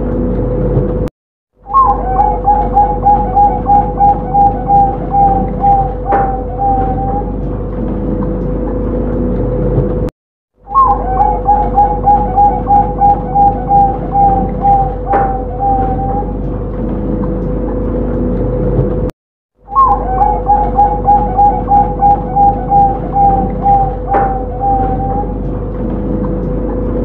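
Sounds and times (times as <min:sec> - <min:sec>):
dove cooing: 0:01.7 - 0:07.5, 0:10.7 - 0:16.4, 0:19.7 - 0:25.5
steady hum: 0:01.7 - 0:10.1, 0:10.7 - 0:19.1, 0:19.7 - 0:27.0.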